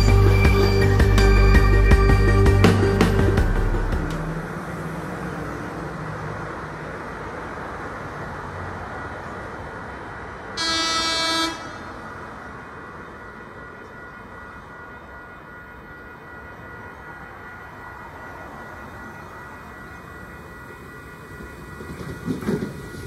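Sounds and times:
rail rumble: 0.0 - 23.0
train horn blast: 10.6 - 12.1.

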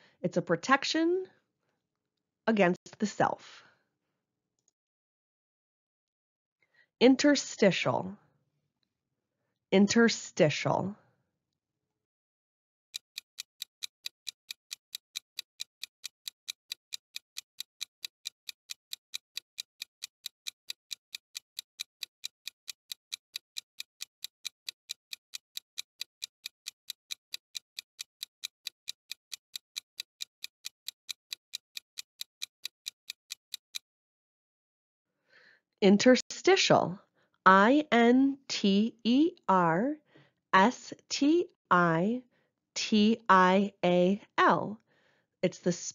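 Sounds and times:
clock ticking: 12.9 - 33.9.

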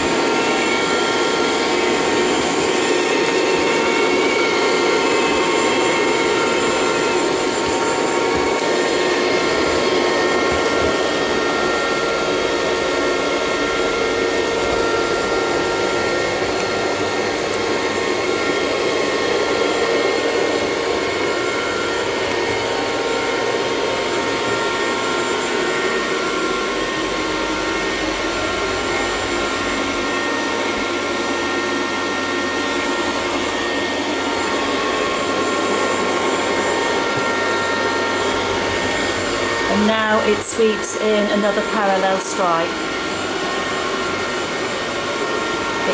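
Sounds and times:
robot vacuum cleaner whirring: 0.0 - 45.9.

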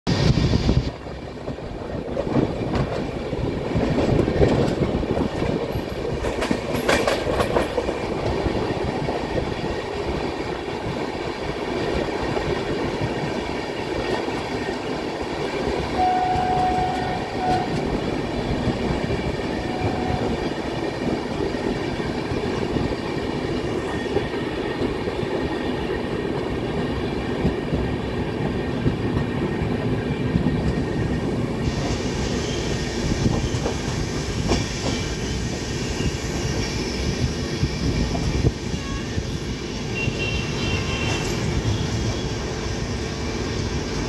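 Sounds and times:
wind rushing: 0.1 - 6.7
train wheels on rail: 0.1 - 44.0
steady high tone: 16.0 - 18.4, 19.2 - 20.8.

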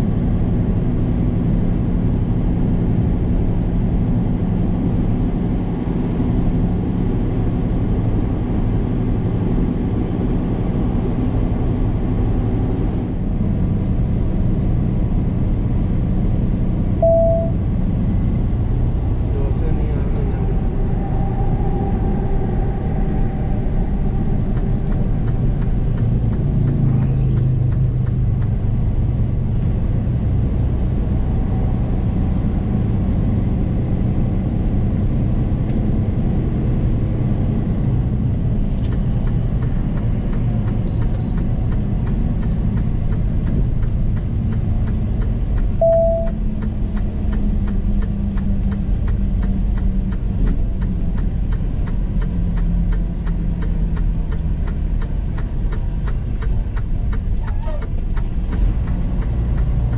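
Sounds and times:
truck engine and road noise: 0.0 - 59.9
short beep: 17.0 - 17.6, 45.8 - 46.4.

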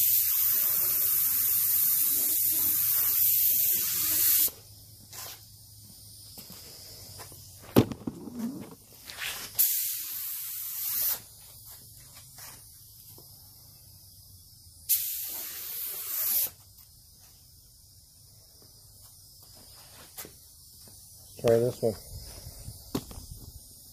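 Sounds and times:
paint spray gun hissing: 0.0 - 6.2, 9.2 - 11.7, 12.4 - 16.8.

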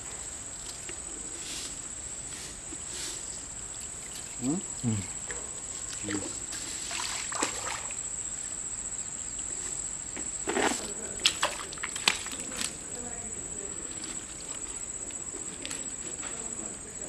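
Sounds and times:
muddy water sloshing: 3.4 - 4.5, 5.8 - 8.0, 10.5 - 12.8.

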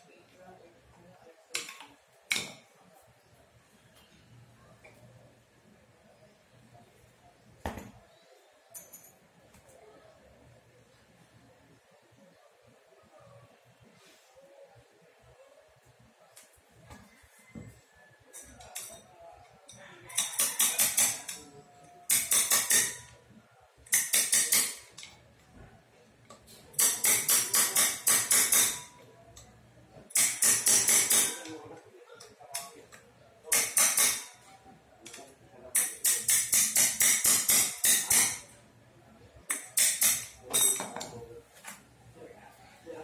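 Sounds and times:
ratchet wrench clicking: 22.1 - 23.1, 23.9 - 25.1, 30.1 - 31.4, 35.8 - 38.4, 39.5 - 40.4.

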